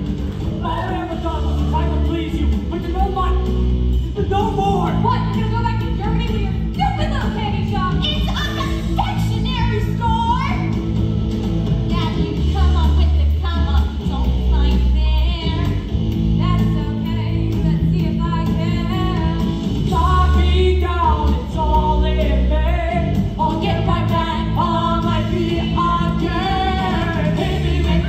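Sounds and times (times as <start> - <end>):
rock accompaniment: 0.0 - 14.6, 15.5 - 28.0
amplified singing: 16.6 - 28.0.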